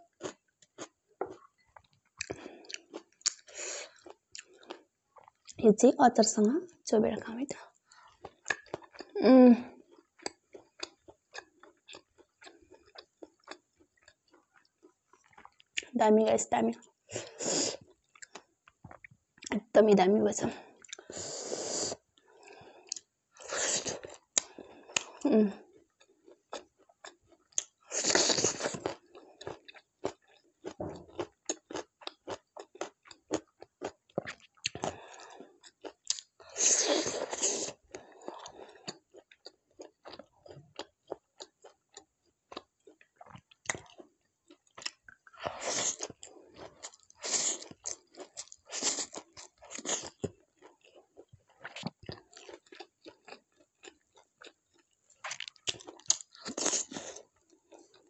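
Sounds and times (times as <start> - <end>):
mouth clicks of chewing: 0.2 - 5.6, 7.5 - 9.2, 10.0 - 15.9, 17.8 - 19.6, 22.9 - 23.1, 26.5 - 30.4, 31.2 - 34.9, 35.6 - 58.0.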